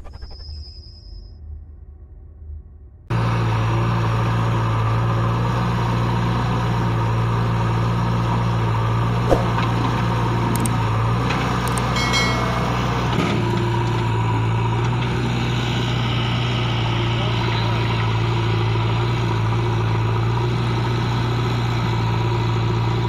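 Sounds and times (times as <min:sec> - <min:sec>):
diesel engines idling: 0:03.1 - 0:23.0
sharp click: 0:09.3 - 0:09.7, 0:11.7 - 0:12.0
high whine: 0:11.8 - 0:14.4.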